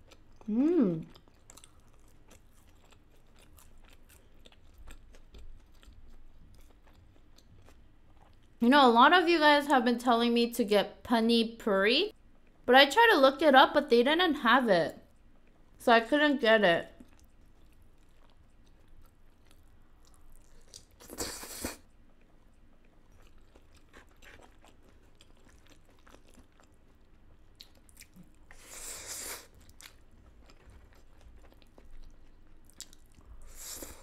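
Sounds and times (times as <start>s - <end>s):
person chewing food: 0.0s - 8.6s, 17.0s - 34.0s.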